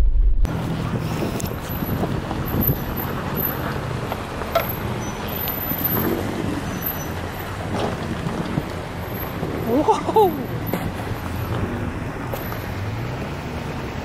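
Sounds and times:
engines rumbling at low speed: 0.0 - 14.0.

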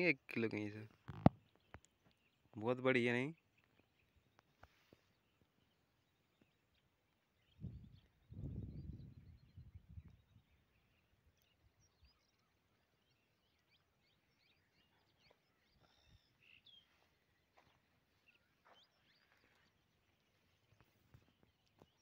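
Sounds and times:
birds chirping and whistling: 13.6 - 17.7.

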